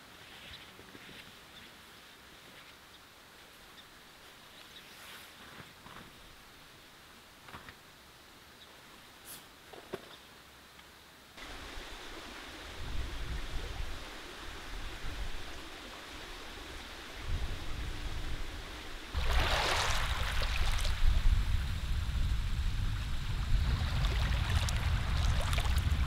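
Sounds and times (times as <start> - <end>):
wind rumble on microphone: 12.6 - 26.0
waves washing onto pebbles: 19.1 - 21.2, 23.6 - 26.0.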